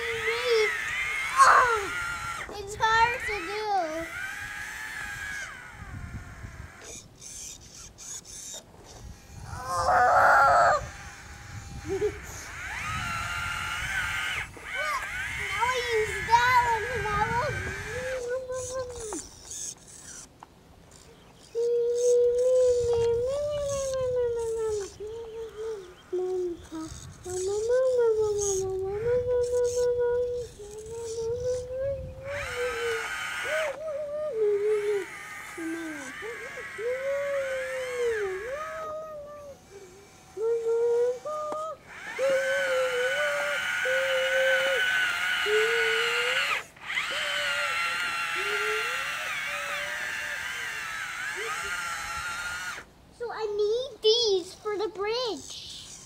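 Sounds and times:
child humming: 0.0 - 7.1, 9.4 - 20.2, 21.1 - 52.8.

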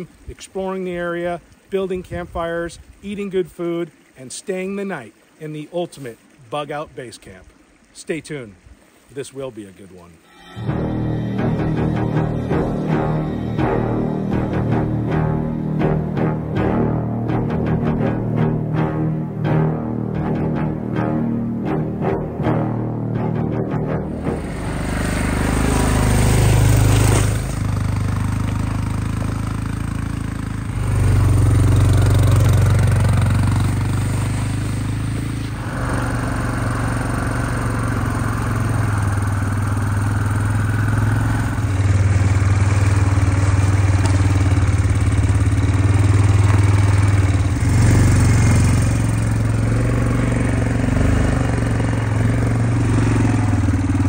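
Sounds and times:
quad engine running: 23.7 - 54.0.

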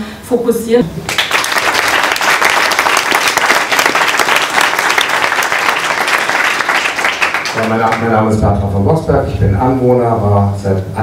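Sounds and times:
audience applauding: 1.1 - 8.3.

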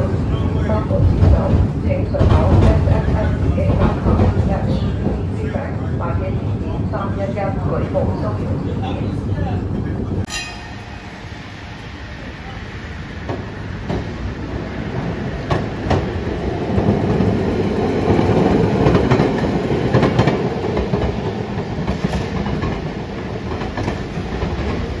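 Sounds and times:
streetcar rumbling past: 0.0 - 25.0.

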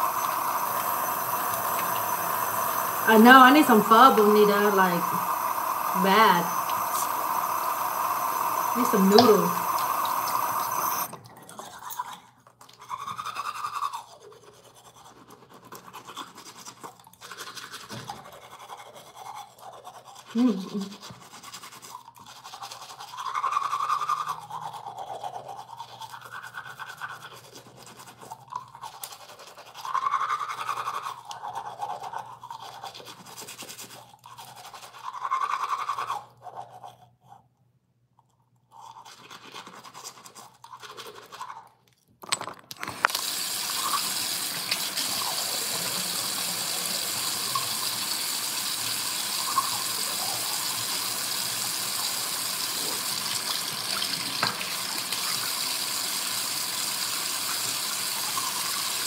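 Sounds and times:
tap water running: 0.0 - 11.2, 42.7 - 59.0
teeth being brushed: 0.0 - 37.6, 38.2 - 41.9, 43.2 - 59.0.

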